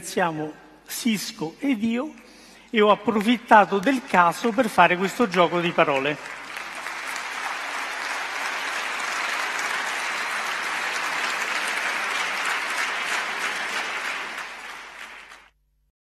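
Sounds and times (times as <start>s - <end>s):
audience applauding: 3.1s - 15.5s.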